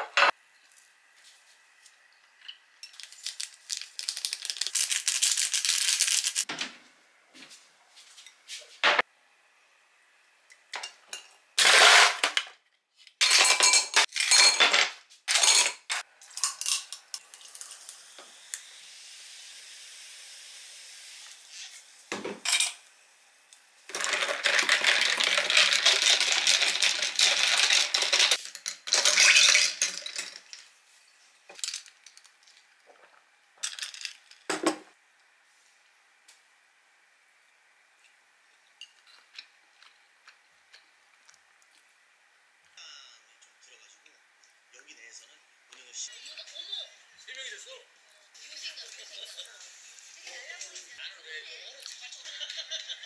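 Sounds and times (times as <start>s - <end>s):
sparkling water pouring and fizzing: 0.4s - 6.5s, 16.1s - 34.5s, 48.2s - 53.0s
ice clinking in glass: 23.9s - 30.3s.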